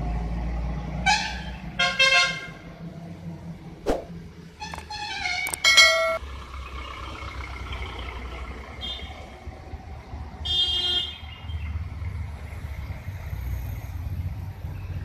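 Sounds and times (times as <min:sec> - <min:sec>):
traffic engine rumble: 0:00.0 - 0:15.0
vehicle horn: 0:01.0 - 0:02.6, 0:10.4 - 0:11.2.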